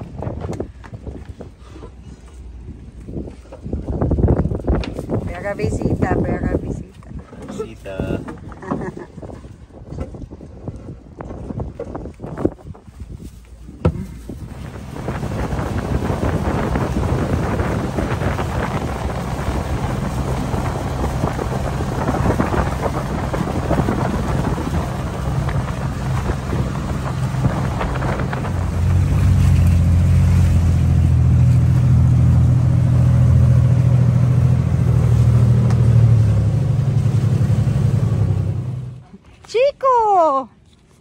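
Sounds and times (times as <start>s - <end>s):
wind: 0.0s - 41.0s
rushing water: 13.6s - 39.0s
boat engine droning: 13.6s - 39.2s.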